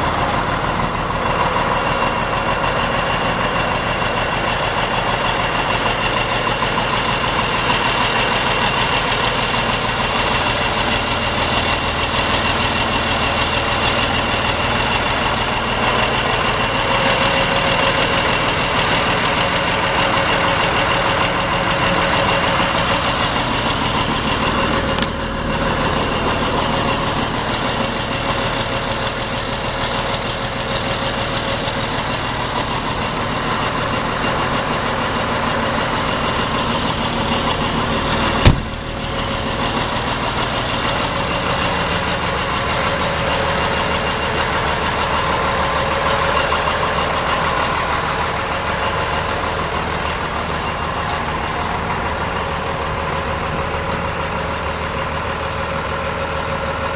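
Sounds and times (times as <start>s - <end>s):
diesel truck engine idling: 0.0s - 56.9s
sharp knock: 38.4s - 39.0s.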